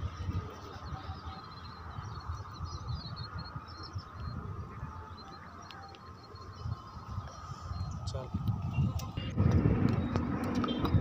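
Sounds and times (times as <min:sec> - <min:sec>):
low rumble on microphone: 0:06.7 - 0:11.0.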